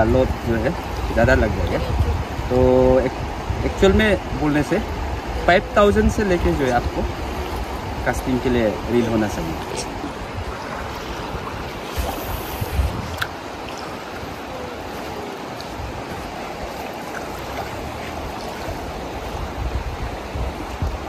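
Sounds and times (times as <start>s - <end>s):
river flowing: 0.0s - 21.0s
waves lapping at shore: 0.0s - 21.0s.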